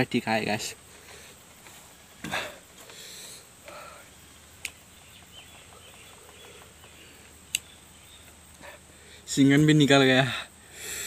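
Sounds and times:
sharp hissing breaths: 0:00.8 - 0:04.9, 0:05.5 - 0:09.4, 0:10.2 - 0:11.0
sharp click: 0:04.6 - 0:04.8, 0:07.5 - 0:07.7.

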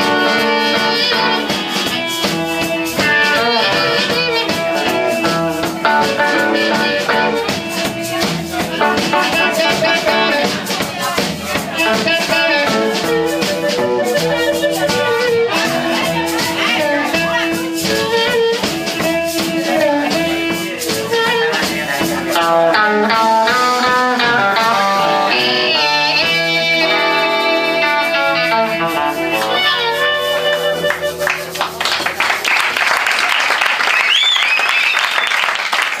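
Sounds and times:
harmonica: 0:00.0 - 0:10.5, 0:11.8 - 0:21.7, 0:23.4 - 0:31.6
live blues band playing: 0:00.0 - 0:35.3
audience applause: 0:30.3 - 0:36.0
audience whistles: 0:32.5 - 0:36.0.

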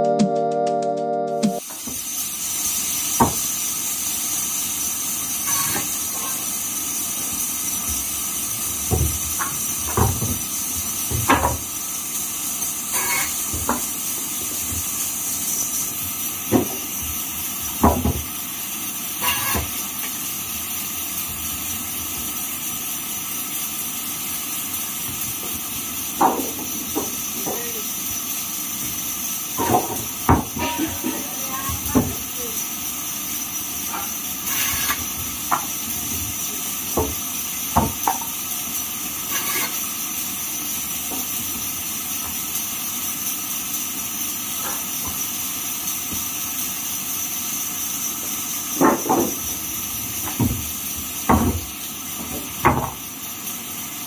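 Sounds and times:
band saw cutting wood: 0:12.9 - 0:13.4, 0:39.3 - 0:39.7
timber knocking on saw table: 0:17.8 - 0:18.2, 0:37.8 - 0:38.3, 0:51.3 - 0:51.6, 0:52.2 - 0:53.0.

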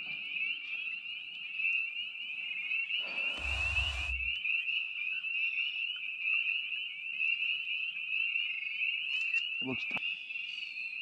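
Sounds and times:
dense frog chorus: 0:03.0 - 0:04.4.

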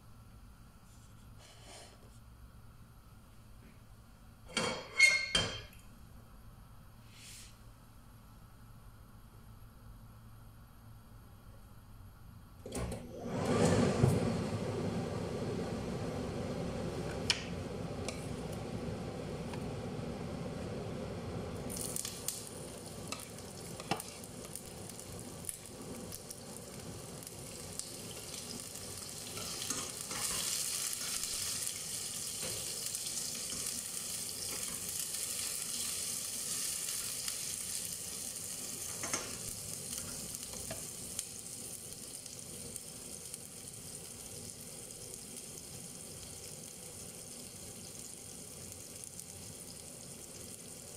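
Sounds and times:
onion sizzling in oil: 0:14.4 - 0:50.9.

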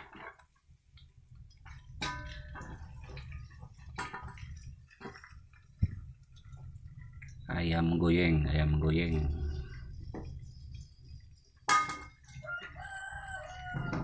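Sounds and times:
low steady hum: 0:01.0 - 0:12.4.

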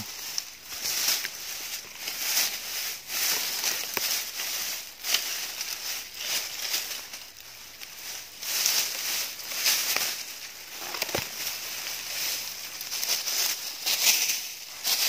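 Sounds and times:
stems snapping: 0:00.0 - 0:00.5, 0:09.5 - 0:11.6
dry grass and leaves rustling: 0:00.0 - 0:15.0.

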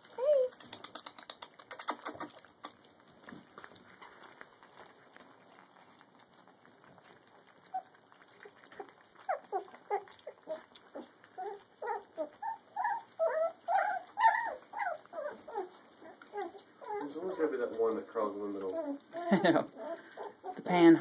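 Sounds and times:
puppies crying: 0:05.8 - 0:20.7.

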